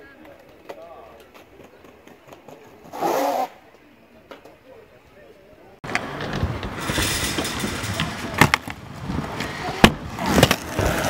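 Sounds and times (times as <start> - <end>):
skateboard clacks: 5.8 - 11.0
skateboard wheels rolling: 5.8 - 11.0.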